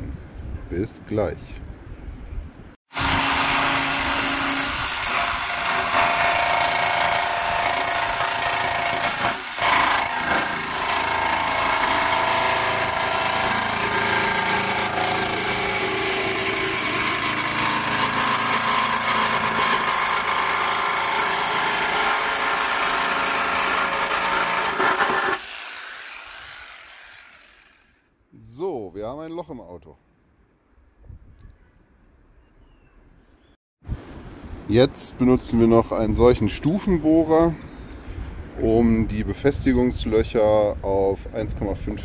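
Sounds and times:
jigsaw cutting sheet metal: 0:02.9 - 0:28.1.

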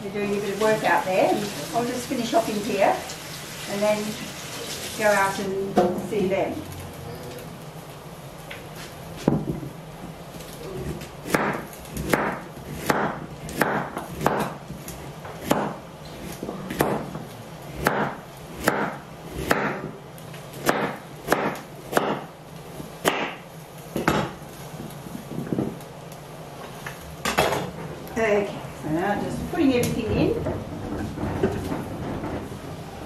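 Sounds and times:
knife chopping on wooden board: 0:11.2 - 0:14.6, 0:15.3 - 0:17.2, 0:17.8 - 0:19.9, 0:20.6 - 0:22.3, 0:23.0 - 0:23.4, 0:24.0 - 0:24.4.

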